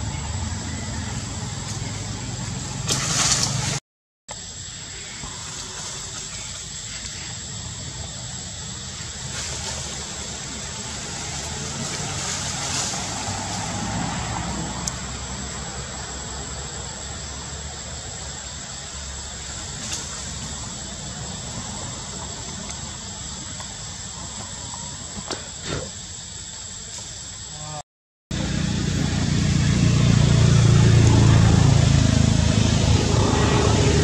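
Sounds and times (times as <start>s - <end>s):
constant high-pitched whine: 4.3s - 34.0s
low rumble: 28.3s - 34.0s.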